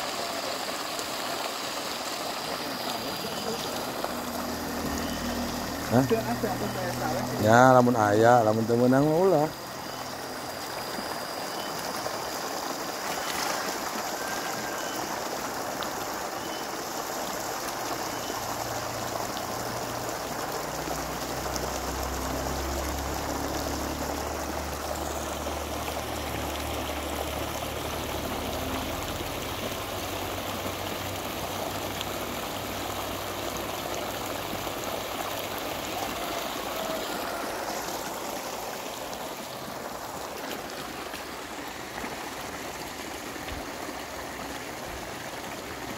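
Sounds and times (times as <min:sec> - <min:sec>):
running water rushing: 0:00.0 - 0:45.9
low hum: 0:02.9 - 0:08.1.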